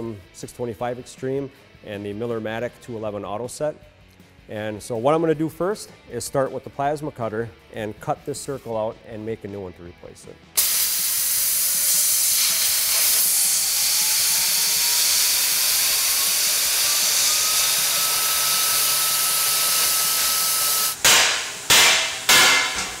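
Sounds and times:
plasma cutter hissing: 10.6s - 23.0s.

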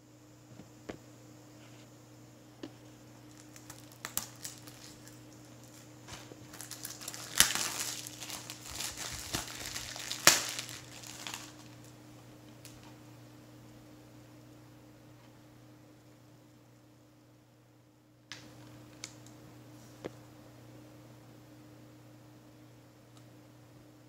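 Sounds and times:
cellophane crinkling: 3.2s - 12.0s.

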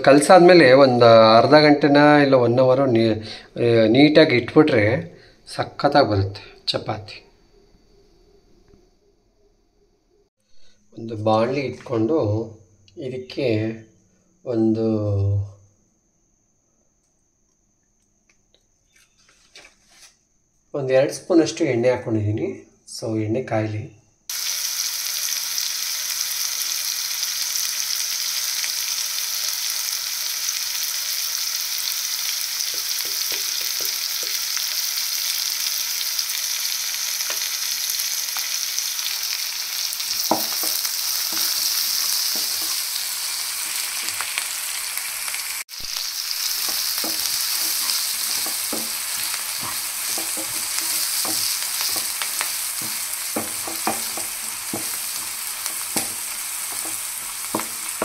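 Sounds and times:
food sizzling in hot oil: 24.3s - 58.0s
stirring knocks: 40.1s - 43.0s, 46.5s - 58.0s.

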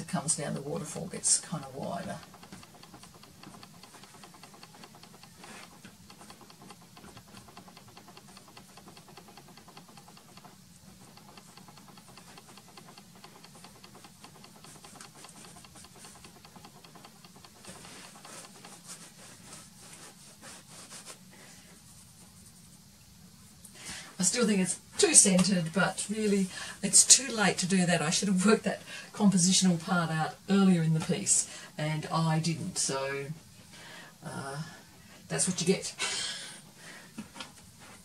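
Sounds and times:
low steady hum: 0.0s - 38.0s
pastel scratching on board: 1.6s - 22.8s.

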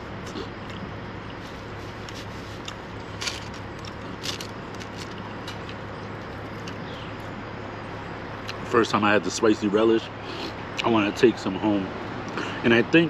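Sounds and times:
steady low hum: 0.0s - 13.0s
chewing and handling food: 0.2s - 7.3s.

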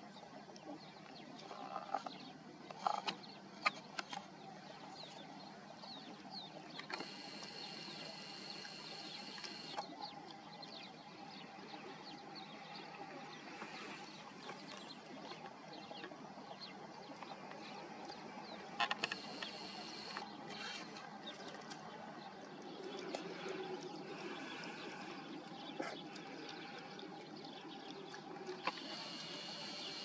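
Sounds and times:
birds chirping: 0.1s - 30.0s
steady low hum: 5.4s - 15.1s.

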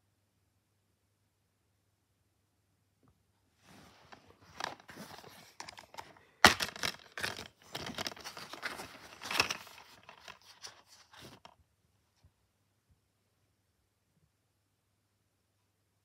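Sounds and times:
paper insert rustling: 3.7s - 11.6s
plastic case scraping and clattering: 3.8s - 11.6s
plastic case snapping open: 4.5s - 11.5s.

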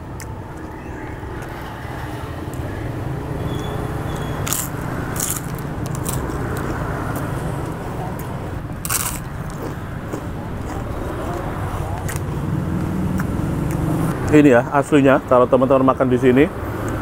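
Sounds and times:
cracker crunching when chewed: 4.4s - 13.8s.

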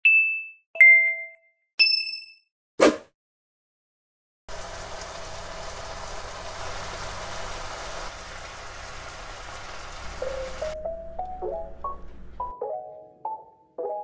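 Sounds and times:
food sizzling in a pan: 4.5s - 10.8s.

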